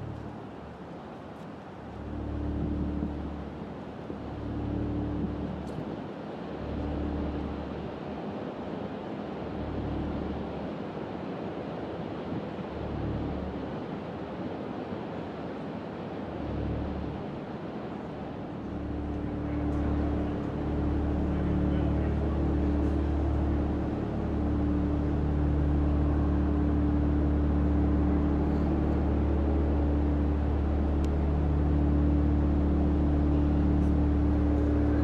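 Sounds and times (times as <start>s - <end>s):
deep pulsing hum: 0.0s - 0.6s, 2.0s - 5.7s, 16.4s - 17.3s, 18.3s - 35.0s
background rumble: 2.0s - 5.8s, 18.3s - 35.0s.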